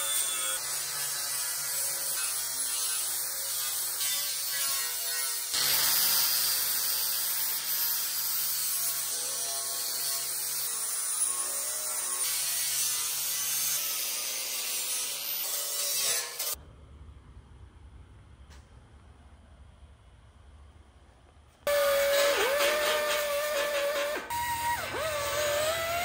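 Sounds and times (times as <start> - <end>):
grinder sanding metal: 21.7 - 26.0.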